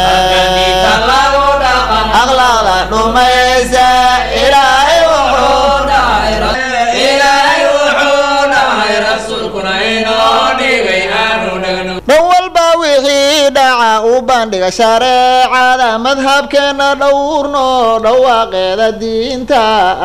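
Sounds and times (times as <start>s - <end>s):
voices chanting a melody: 0.0s - 12.0s
low steady hum: 0.0s - 12.2s.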